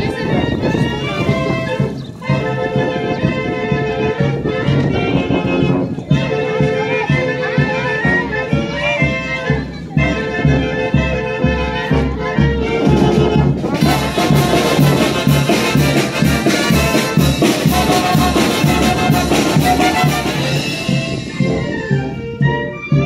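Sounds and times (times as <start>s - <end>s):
trumpets and trombones: 0.0s - 23.0s
bass drum beat: 11.8s - 23.0s.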